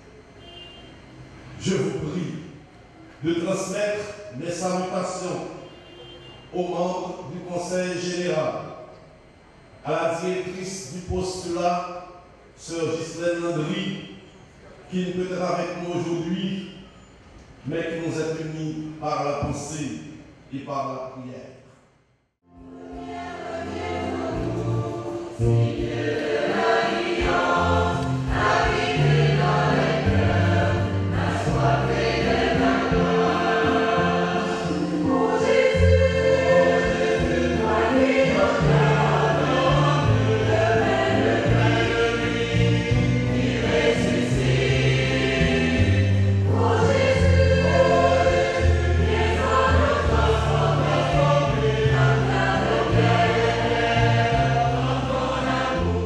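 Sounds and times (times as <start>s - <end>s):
choir singing a hymn: 3.2s - 5.6s, 22.5s - 56.0s.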